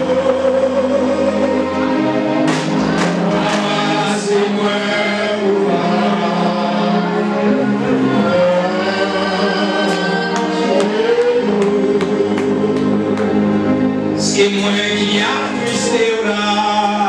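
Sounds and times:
sustained instrumental accompaniment: 0.0 - 17.0
man singing into microphone: 14.2 - 17.0.

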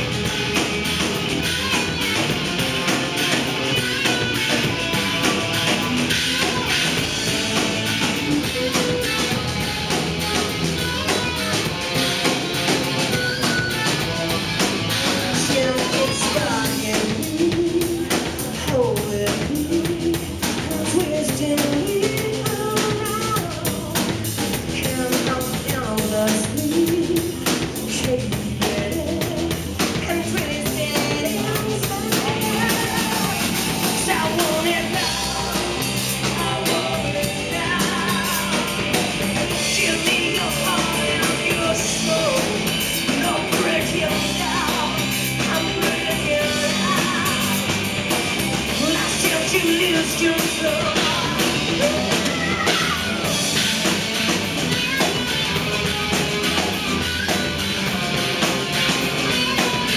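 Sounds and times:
live rock band: 0.0 - 59.9
man singing: 14.9 - 47.7, 48.7 - 53.4.

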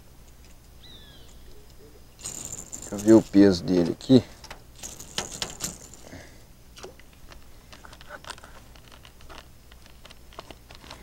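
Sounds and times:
fish lip grip clicking and rattling: 2.2 - 3.5, 4.4 - 6.2.

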